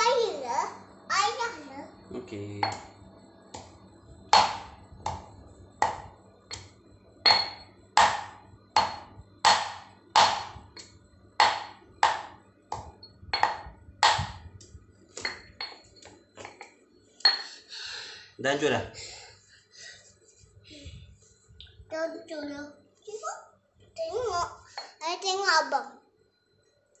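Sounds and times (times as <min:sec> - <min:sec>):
stone pestle pounding in mortar: 0:02.6 - 0:02.9, 0:04.3 - 0:10.8, 0:11.4 - 0:14.4.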